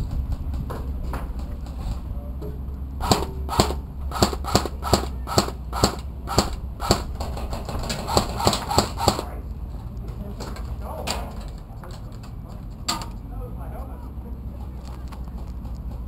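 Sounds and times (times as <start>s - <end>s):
airsoft gun shots: 3.0s - 9.3s.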